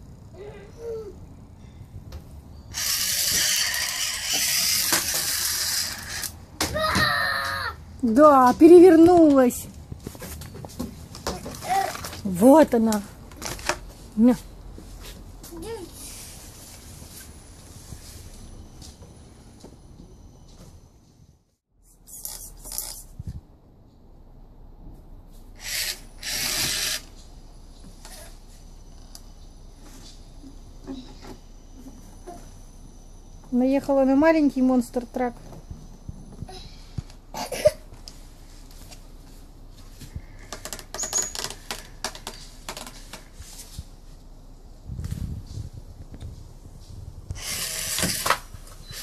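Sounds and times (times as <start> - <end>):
toy truck motor whirring: 2.7 - 6.4, 25.6 - 27.2, 47.4 - 49.0.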